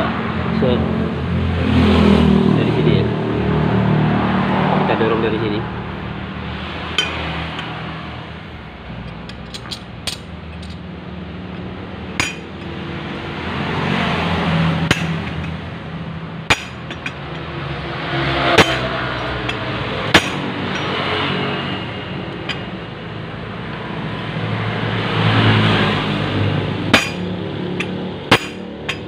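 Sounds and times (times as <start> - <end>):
sharp metal clanks: 6.8 - 7.9, 9.0 - 10.8, 12.1 - 12.8, 14.8 - 15.6, 16.4 - 17.6, 18.4 - 21.5, 22.3 - 22.9, 26.9 - 29.0.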